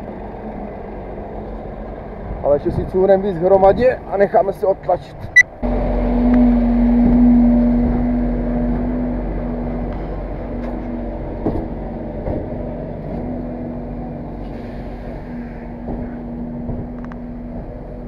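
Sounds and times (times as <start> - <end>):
truck engine running: 5.3 - 18.0
trailer discharging load: 5.4 - 18.0.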